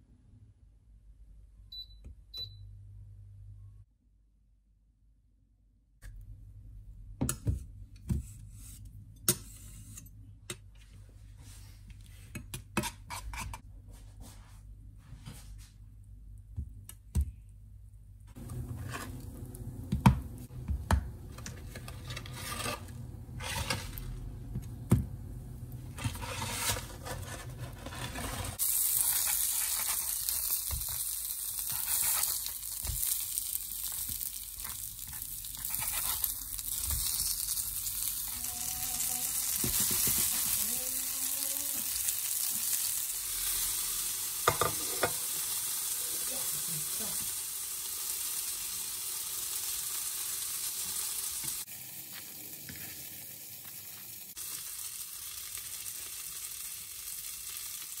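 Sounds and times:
food sizzling in hot oil: 28.4 - 58.0.

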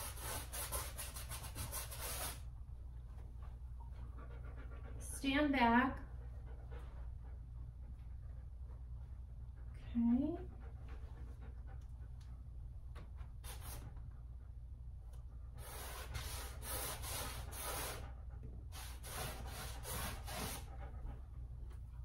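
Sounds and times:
paintbrush scrubbing on canvas: 0.0 - 2.5, 13.4 - 13.8, 15.6 - 18.1, 18.7 - 20.7.

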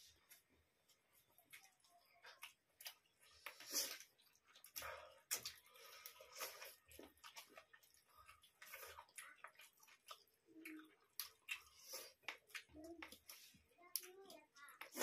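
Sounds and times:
people chewing and mouth smacks: 0.0 - 15.0
rice squishing on steel plates: 0.0 - 15.0.

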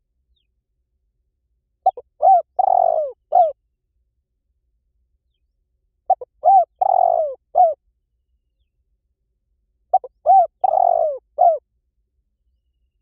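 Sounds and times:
dove cooing: 1.8 - 3.6, 6.1 - 7.8, 9.9 - 11.6.

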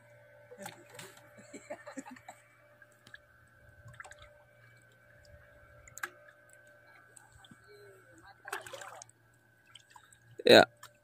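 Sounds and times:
low steady hum: 0.0 - 11.0
water lapping against boat hull: 2.7 - 11.0.

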